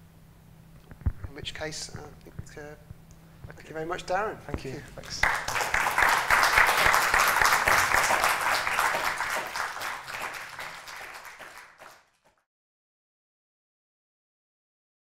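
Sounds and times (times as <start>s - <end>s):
audience applauding: 5.0s - 12.4s.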